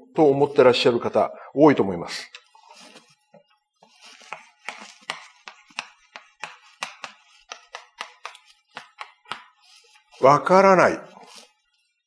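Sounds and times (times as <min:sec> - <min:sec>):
chalk scratching: 0:02.3 - 0:12.0
chalk tapping on blackboard: 0:02.4 - 0:10.5.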